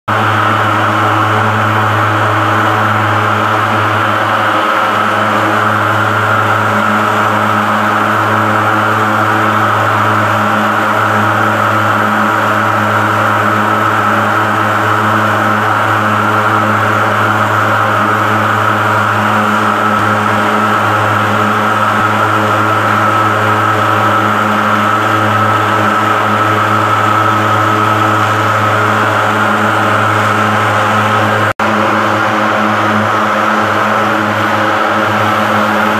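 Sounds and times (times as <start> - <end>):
thermal fogger droning: 0.1 - 35.9.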